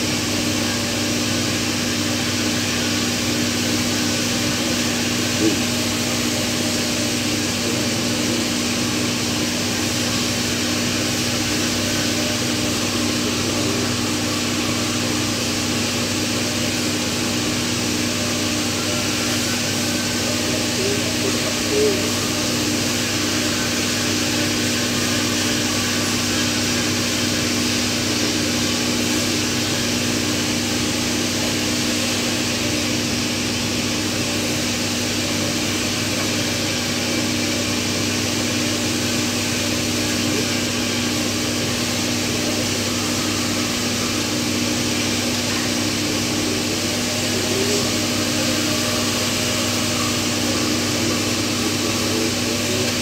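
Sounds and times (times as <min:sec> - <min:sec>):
machine hum with hiss: 0:00.0 - 0:53.0.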